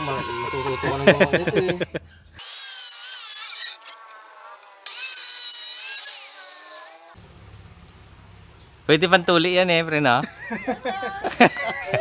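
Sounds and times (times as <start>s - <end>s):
cut-off saw grinding steel: 2.4s - 7.2s.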